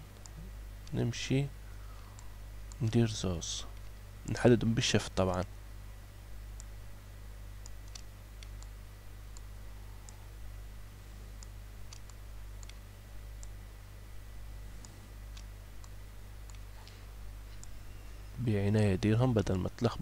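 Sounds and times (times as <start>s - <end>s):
steady low hum: 0.0s - 20.0s
computer mouse clicking: 7.6s - 8.7s, 11.4s - 12.8s, 14.8s - 17.8s.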